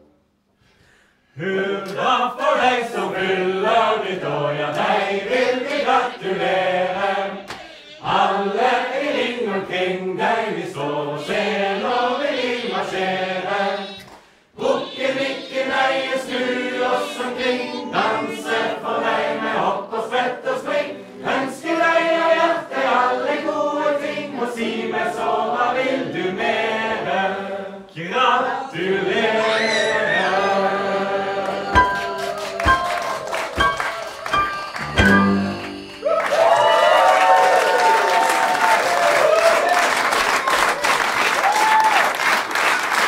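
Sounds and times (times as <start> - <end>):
group singing a birthday song: 1.3 - 36.2.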